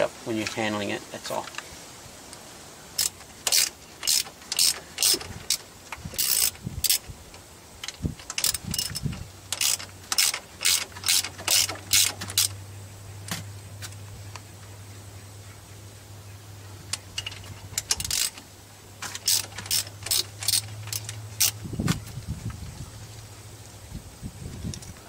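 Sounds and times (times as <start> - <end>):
ratchet wrench clicking: 3.0 - 7.1, 7.8 - 12.6, 16.9 - 18.4, 19.0 - 21.6.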